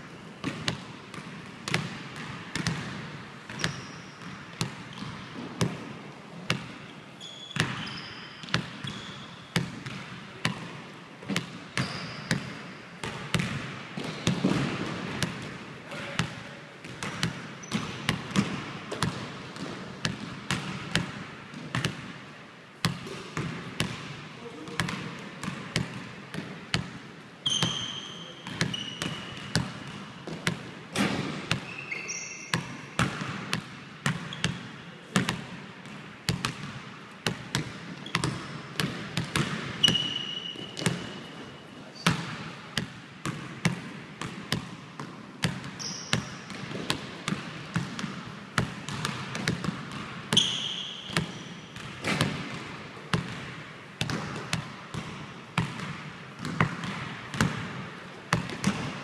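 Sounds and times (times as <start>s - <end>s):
basketball bouncing on wooden floor: 0.4s - 5.8s, 11.3s - 15.5s, 37.3s - 41.1s, 42.1s - 59.0s
sneakers squeaking on floor: 3.5s - 5.5s, 6.8s - 10.0s, 11.3s - 12.8s, 17.6s - 18.4s, 27.4s - 29.6s, 30.3s - 33.0s, 34.2s - 34.6s, 38.0s - 38.6s, 39.7s - 42.3s, 45.6s - 46.8s, 50.3s - 52.5s.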